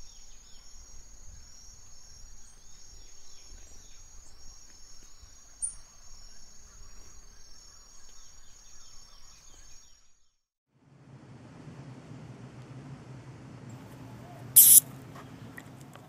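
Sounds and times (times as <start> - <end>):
insects droning: 0.0 - 10.0, 14.6 - 14.8
small birds chirping: 0.0 - 10.1, 14.3 - 15.6.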